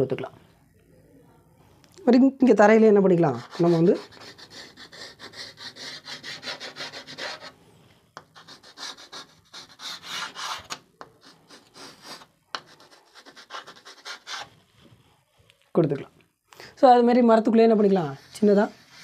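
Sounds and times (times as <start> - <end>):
chalk rubbing on chalkboard: 3.3 - 7.6, 8.2 - 14.6, 18.0 - 19.0.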